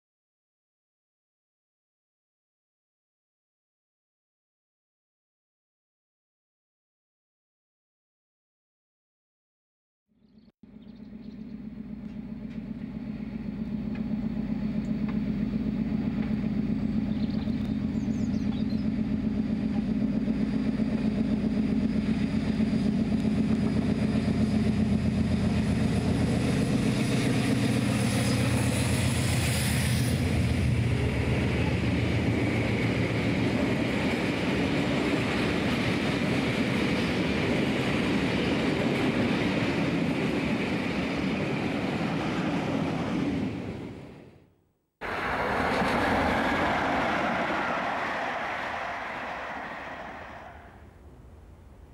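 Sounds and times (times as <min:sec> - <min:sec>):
diesel locomotive engine labouring: 0:10.6 - 0:44.4, 0:45.0 - 0:51.8.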